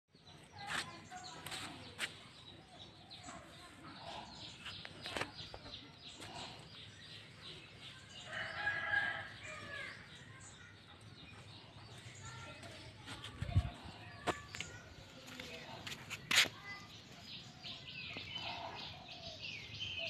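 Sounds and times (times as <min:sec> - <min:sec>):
birds chirping: 0:00.1 - 0:20.0.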